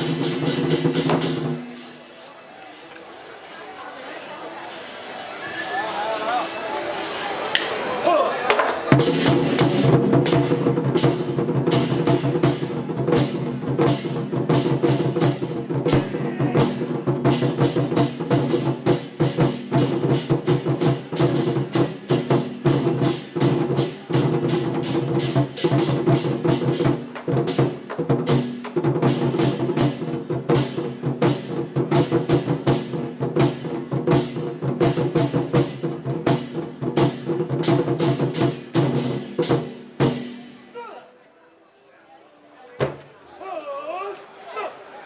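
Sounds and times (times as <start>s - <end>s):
fast loud drumming: 0.0s - 2.1s, 8.1s - 40.5s.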